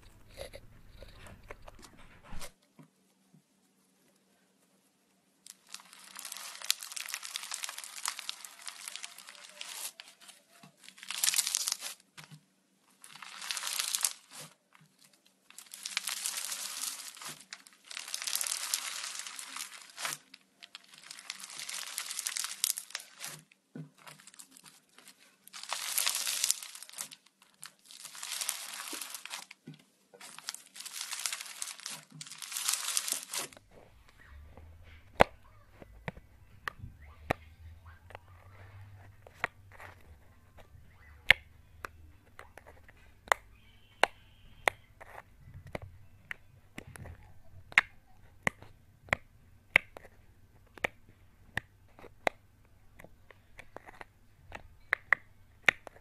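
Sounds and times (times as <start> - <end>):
foam bead slime crackling: 5.4 - 56.0.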